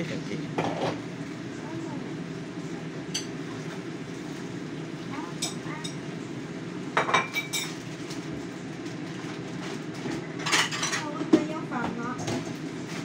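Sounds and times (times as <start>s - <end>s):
steady low hum: 0.0s - 13.0s
dishes and utensils clinking: 7.0s - 7.8s, 10.4s - 12.5s.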